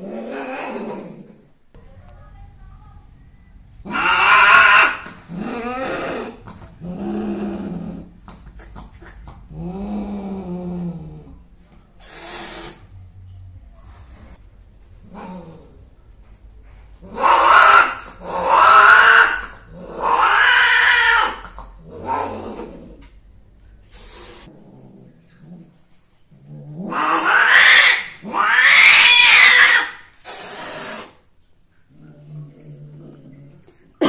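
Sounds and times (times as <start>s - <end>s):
cat yowling: 3.9s - 6.4s, 17.1s - 22.8s, 26.9s - 30.7s
cat hissing: 3.9s - 10.6s, 11.9s - 13.0s, 16.9s - 23.1s, 23.8s - 24.6s, 26.8s - 31.3s.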